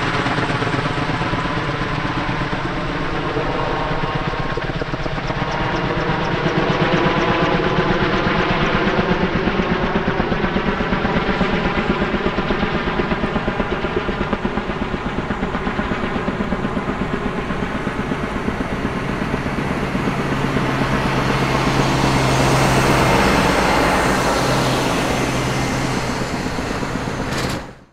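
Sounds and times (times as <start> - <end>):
helicopter rotors beating: 0.0 - 27.9.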